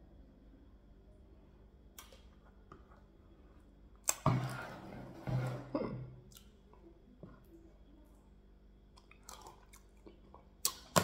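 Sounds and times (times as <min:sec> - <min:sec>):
pot scraping on table: 0:04.2 - 0:05.8.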